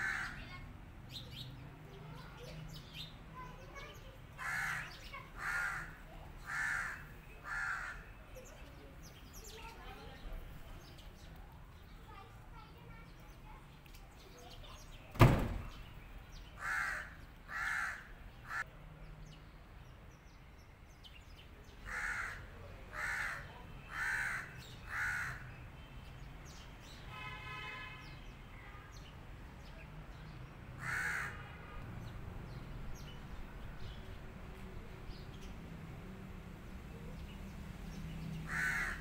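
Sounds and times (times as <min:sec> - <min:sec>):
crow cawing: 0:00.0 - 0:00.4, 0:04.4 - 0:08.1, 0:16.6 - 0:18.6, 0:21.9 - 0:25.5, 0:30.8 - 0:31.4, 0:38.5 - 0:39.0
sharp knock: 0:15.1 - 0:15.8.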